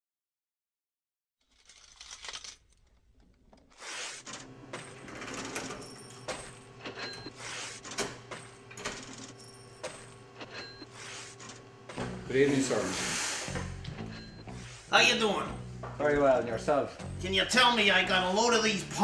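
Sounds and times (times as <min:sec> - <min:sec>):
coins clinking in cash drawer: 0:04.3 - 0:10.7.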